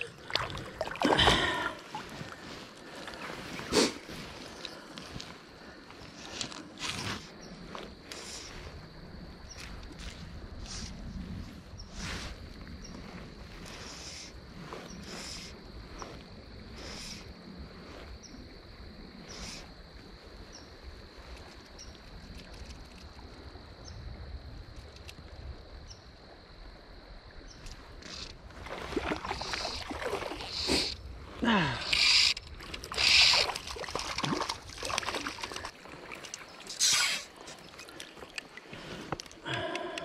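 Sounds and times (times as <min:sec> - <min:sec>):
shallow creek murmur: 0:00.0 - 0:40.0
fish splashing in water: 0:28.6 - 0:30.8, 0:32.0 - 0:38.8.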